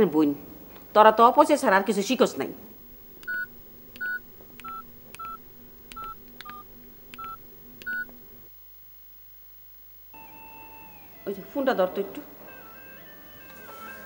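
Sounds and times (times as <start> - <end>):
phone keypad beeps: 2.8 - 8.5.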